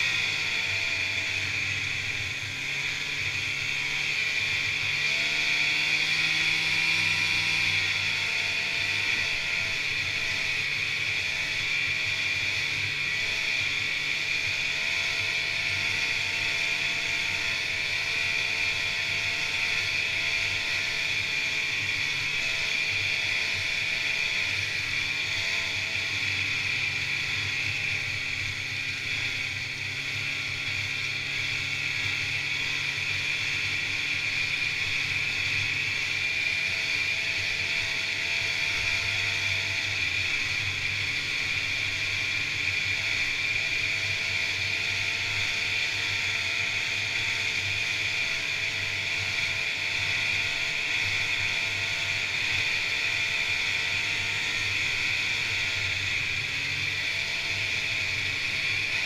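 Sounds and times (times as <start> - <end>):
snowmobile engine droning: 0.0 - 59.0.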